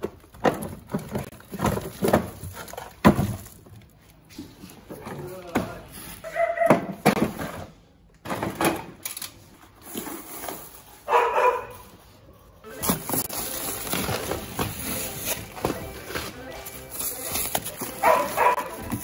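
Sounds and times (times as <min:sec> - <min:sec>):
plastic and metal parts clattering: 0:00.0 - 0:05.8, 0:06.7 - 0:11.1, 0:12.7 - 0:19.0.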